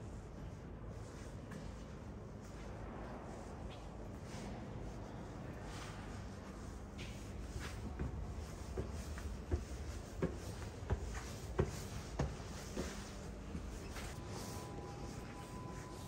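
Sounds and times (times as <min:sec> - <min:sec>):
faint steady hum: 0:00.0 - 0:16.0
footsteps on concrete stairs: 0:07.7 - 0:14.2.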